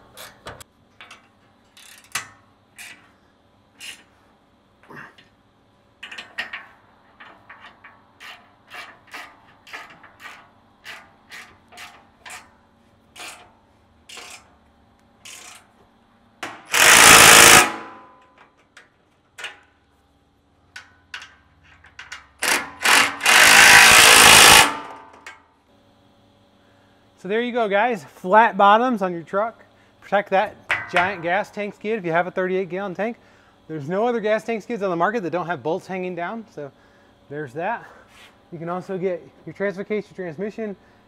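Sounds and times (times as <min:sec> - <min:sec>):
impact driver hammering bolts: 0:16.4 - 0:18.0, 0:22.4 - 0:25.2
hand ratchet clicking: 0:16.7 - 0:17.8, 0:22.1 - 0:24.8.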